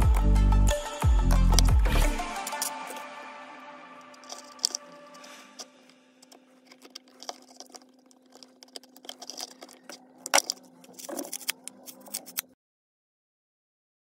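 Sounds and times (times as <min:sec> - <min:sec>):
plastic starter housing clicks: 0:05.6 - 0:12.5.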